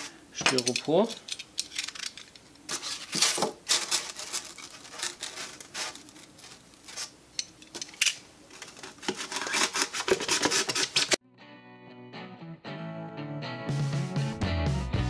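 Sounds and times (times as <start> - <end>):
knife cutting polystyrene: 2.7 - 7.2, 8.6 - 11.2.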